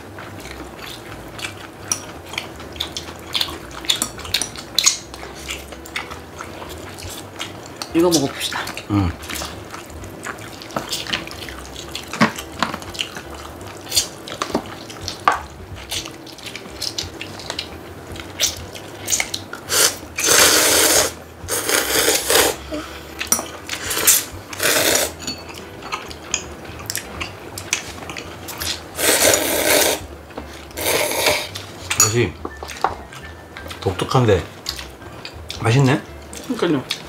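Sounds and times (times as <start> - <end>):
people slurping noodles: 18.4 - 23.1, 23.8 - 25.2, 28.5 - 30.1, 30.7 - 31.7.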